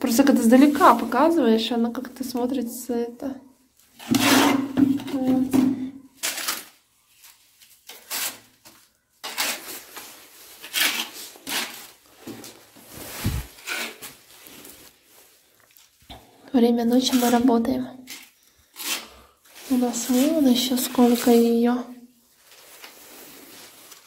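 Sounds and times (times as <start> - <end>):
person speaking: 0.0 - 3.4, 16.5 - 18.1, 19.6 - 22.0
trowel scraping tile adhesive: 4.0 - 4.8, 9.2 - 9.6, 10.6 - 11.9, 13.6 - 14.1, 18.1 - 19.2.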